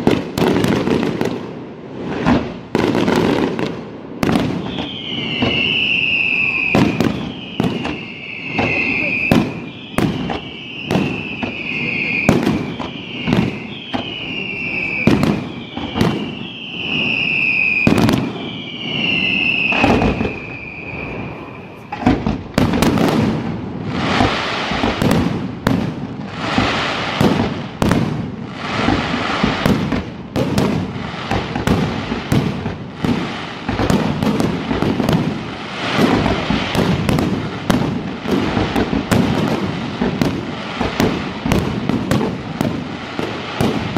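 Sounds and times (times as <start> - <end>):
sharp firework bangs: 0.0 - 43.9
firework whistles falling in pitch: 4.2 - 23.2.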